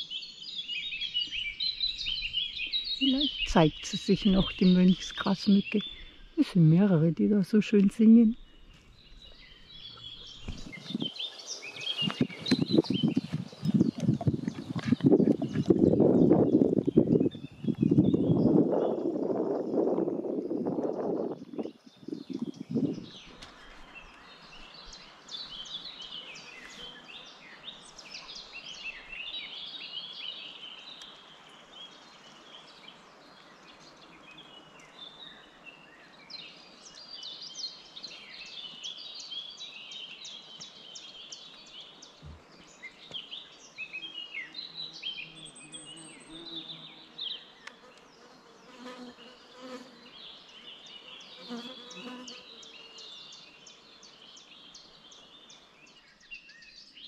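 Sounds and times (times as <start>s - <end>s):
birds warbling: 0.6s - 19.0s.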